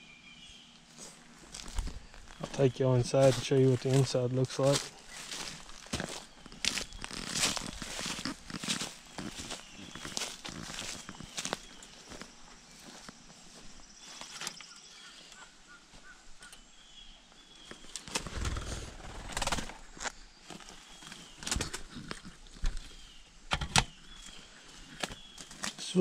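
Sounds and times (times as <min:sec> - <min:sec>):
faint bird chirps: 0:04.6 - 0:18.8, 0:19.9 - 0:26.0.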